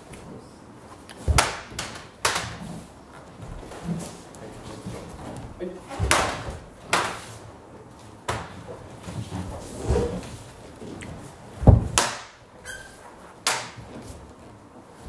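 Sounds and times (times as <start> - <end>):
wooden weapons clacking: 5.2 - 7.3, 13.4 - 14.0.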